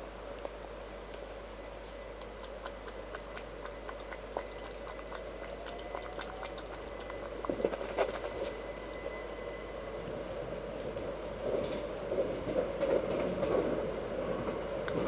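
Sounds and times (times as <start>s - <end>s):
rain dripping and pattering: 2.1s - 8.3s.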